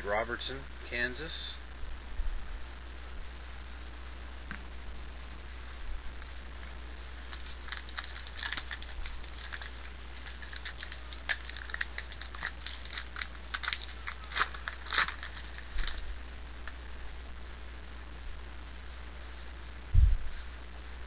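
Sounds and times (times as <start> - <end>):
wrapper crinkling: 7.1 - 16.2.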